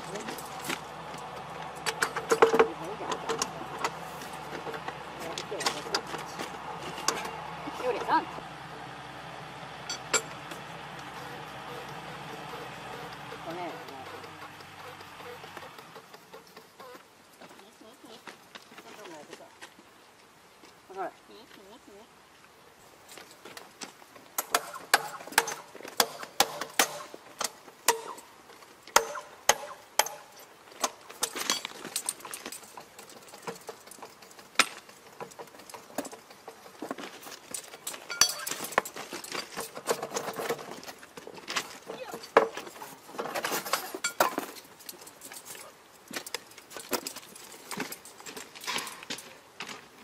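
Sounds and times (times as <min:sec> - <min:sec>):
metal tools striking metal: 0:09.9 - 0:10.5, 0:27.9 - 0:28.3, 0:29.0 - 0:30.4, 0:37.6 - 0:39.8, 0:44.0 - 0:44.4.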